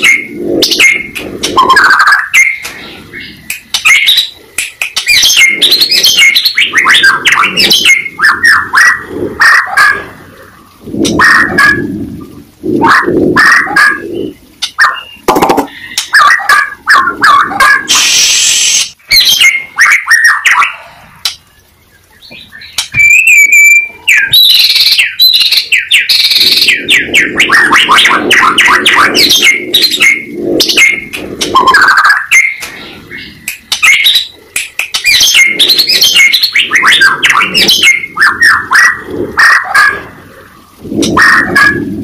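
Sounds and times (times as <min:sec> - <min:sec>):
shama bird singing: 0:00.0 - 0:09.8, 0:21.5 - 0:39.8.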